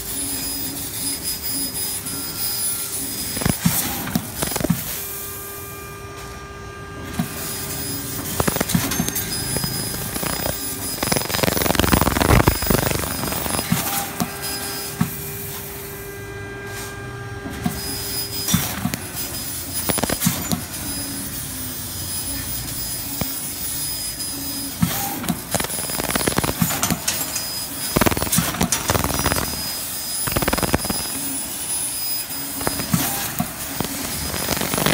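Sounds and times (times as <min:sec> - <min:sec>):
laser cutter hissing and whining: 0:00.0 - 0:16.9, 0:17.6 - 0:34.9
sharp clicks: 0:04.4 - 0:04.8, 0:08.3 - 0:13.8, 0:19.8 - 0:20.3, 0:25.5 - 0:27.2, 0:28.0 - 0:31.2.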